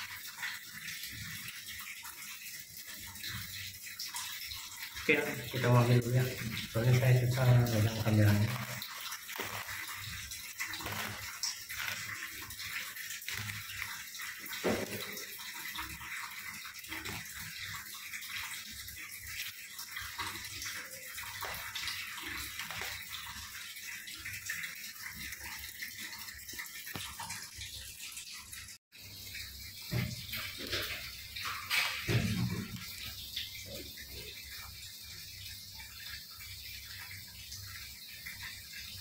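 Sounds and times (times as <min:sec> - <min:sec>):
faint clicks and crackles: 0:07.8 - 0:14.0, 0:21.2 - 0:23.4.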